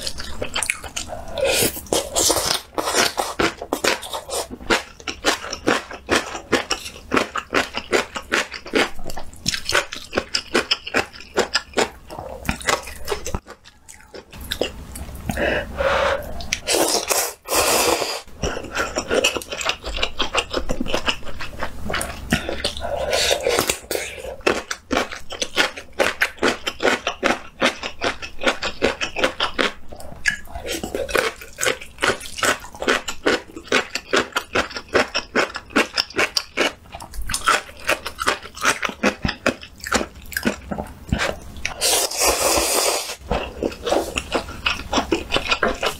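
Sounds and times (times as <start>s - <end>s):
crunching and chewing: 0.0s - 15.4s, 16.2s - 45.9s
slurping noodles: 1.0s - 4.8s, 15.8s - 19.4s, 41.2s - 44.7s.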